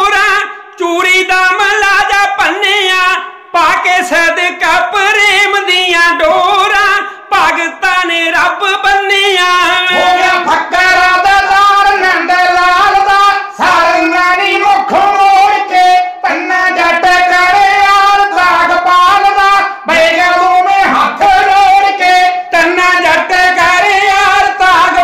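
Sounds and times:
men singing unaccompanied: 0.0s - 25.0s.

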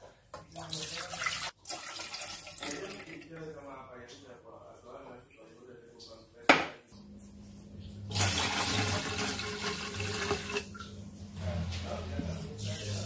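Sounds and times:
liquid pouring into a pot: 0.6s - 3.4s, 8.1s - 10.9s.

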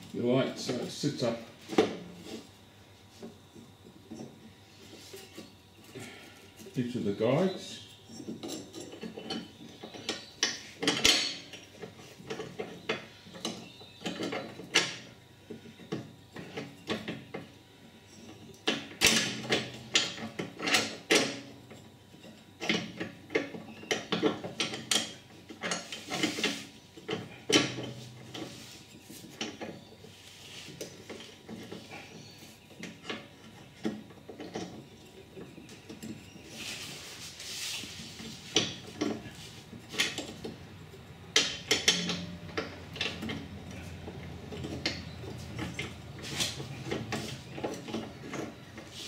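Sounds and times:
metal parts knocking together: 41.3s - 48.9s
metallic clicks and clanks: 41.3s - 49.0s.

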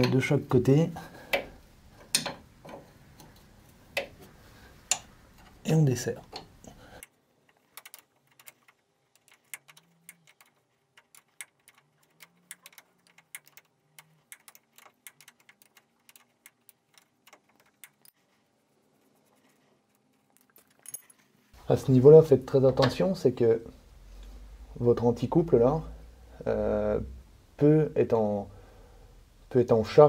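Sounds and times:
spanner metallic clicks: 1.3s - 3.3s, 4.8s - 5.6s, 7.5s - 18.2s.

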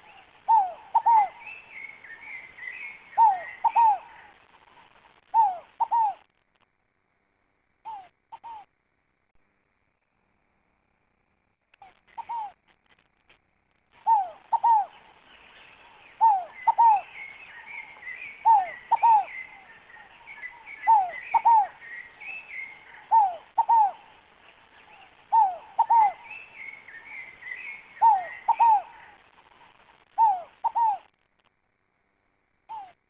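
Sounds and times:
ground dove cooing: 0.0s - 6.3s, 7.8s - 8.7s, 11.8s - 12.6s, 13.9s - 31.1s, 32.7s - 33.0s
small birds twittering: 0.0s - 6.3s, 11.8s - 12.6s, 13.9s - 31.2s, 32.7s - 33.0s.

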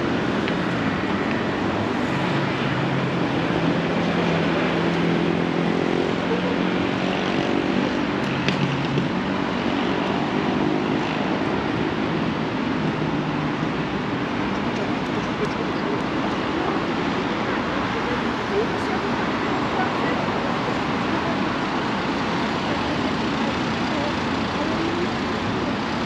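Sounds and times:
road traffic noise: 0.0s - 26.0s.

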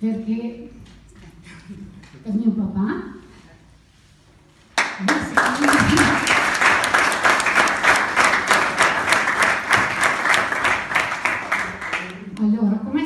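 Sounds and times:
crowd applause: 4.8s - 12.2s.

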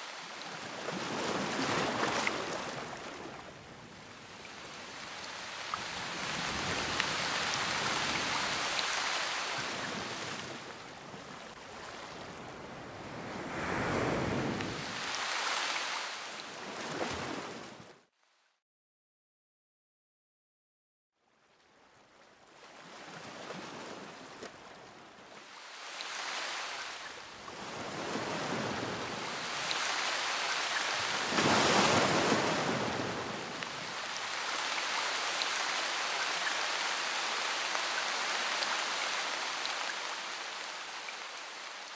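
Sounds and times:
rain falling: 4.1s - 11.6s, 27.8s - 41.9s.

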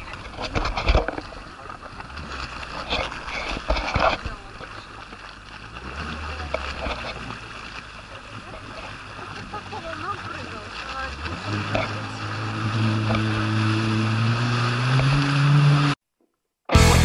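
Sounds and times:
jet ski engine running: 0.0s - 16.0s, 16.7s - 17.0s
water washing against hull: 0.0s - 16.0s.

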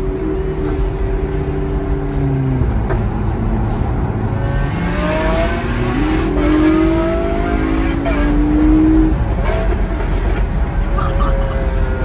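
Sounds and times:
car engine from inside cabin: 0.0s - 9.4s
road and tyre noise: 0.0s - 12.0s.

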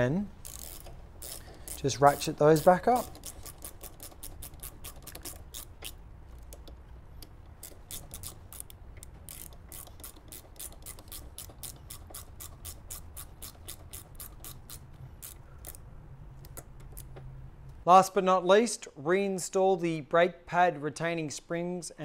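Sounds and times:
hand ratchet clicking: 0.0s - 17.2s.

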